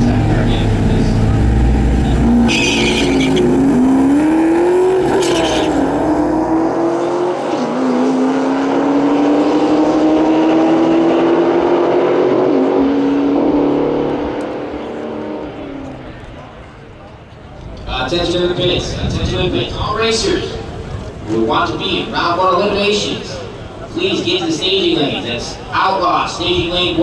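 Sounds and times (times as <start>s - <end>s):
car engines at full throttle: 0.0s - 17.5s.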